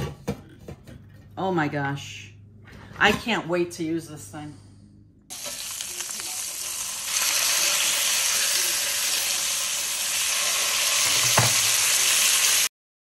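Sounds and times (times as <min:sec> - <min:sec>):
meat sizzling in a frying pan: 0:05.3 - 0:12.7.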